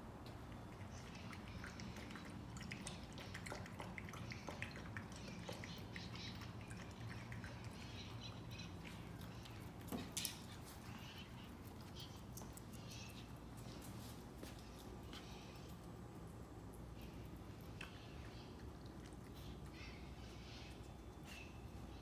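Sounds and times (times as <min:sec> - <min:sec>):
puppy lapping water: 0:00.3 - 0:09.8.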